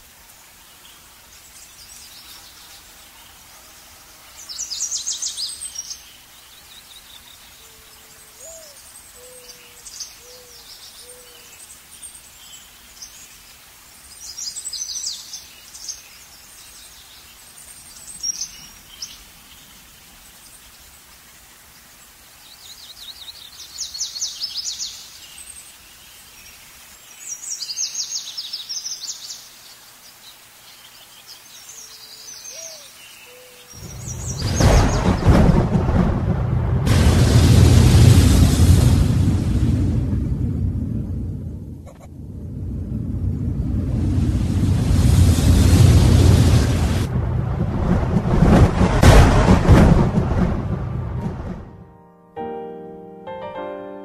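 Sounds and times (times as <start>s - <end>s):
background hiss: 0.0s - 54.0s.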